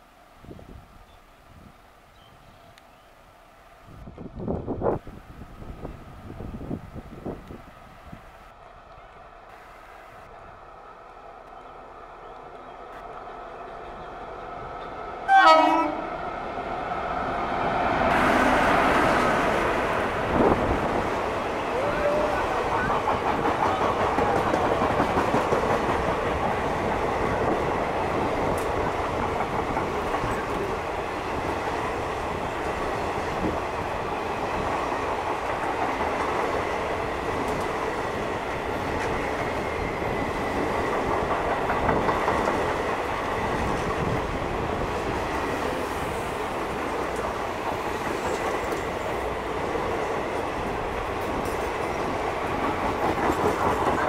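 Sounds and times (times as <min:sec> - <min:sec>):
train wheels clattering over rail joints: 0:22.6 - 0:31.4, 0:37.3 - 0:44.2, 0:50.4 - 0:54.0.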